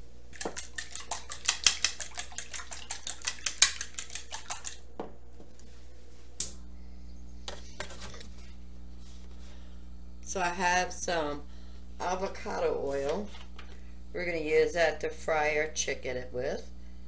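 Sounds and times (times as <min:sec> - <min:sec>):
fork beating eggs in bowl: 0:00.3 - 0:04.9.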